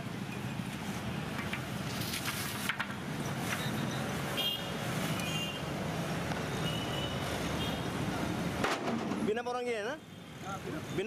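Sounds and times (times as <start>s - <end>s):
sharp knocks: 8.6s - 9.3s.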